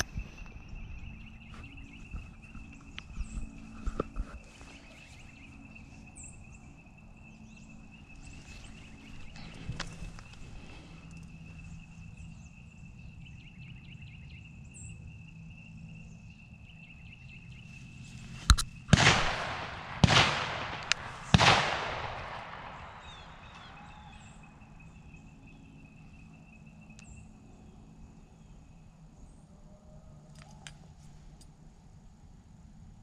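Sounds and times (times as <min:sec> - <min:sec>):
sharp crack: 0:18.4 - 0:24.2
shotgun shots with echo: 0:18.9 - 0:24.2.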